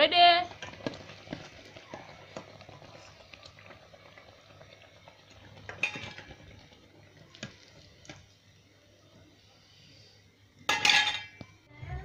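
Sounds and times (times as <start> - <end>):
oil bubbling in a pot: 0.0 - 11.8
metal spoon clinking on pot: 10.7 - 11.4.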